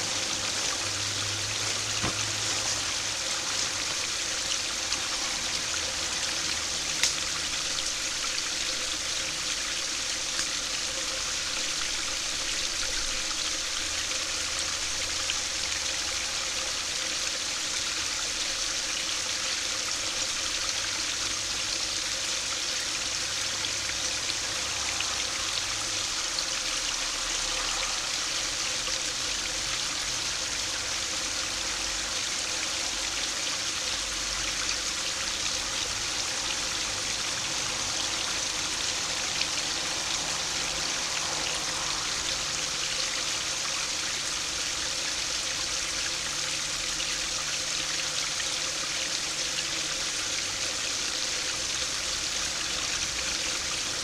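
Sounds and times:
water splashing over a weir: 0.0s - 8.8s.

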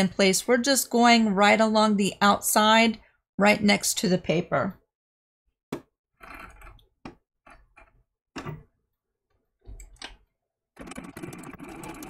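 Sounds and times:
sewing machine stitching: 6.2s - 6.9s, 10.8s - 12.0s.

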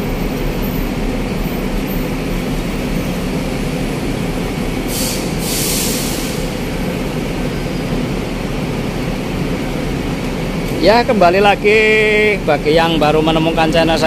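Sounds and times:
bus engines rumbling: 0.0s - 14.0s
air brake hissing: 4.8s - 6.9s.

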